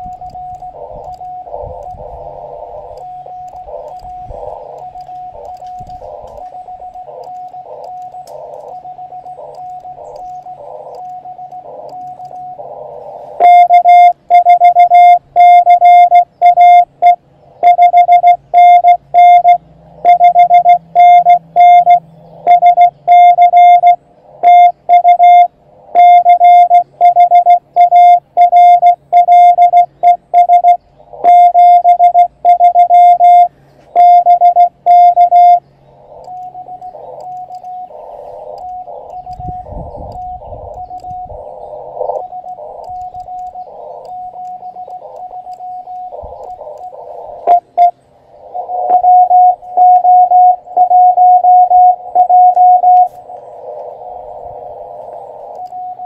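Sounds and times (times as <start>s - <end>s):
radio band hiss: 0.0s - 17.1s, 36.0s - 50.8s, 51.9s - 56.0s
morse code tones: 0.0s - 56.0s.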